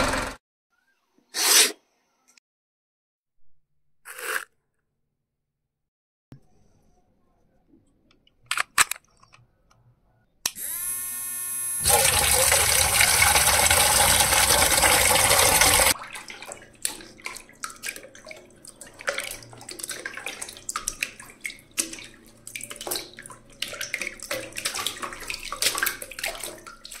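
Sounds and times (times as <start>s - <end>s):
electric water pump whining: 10.5s - 16.0s
water splashing and dripping: 11.9s - 27.0s.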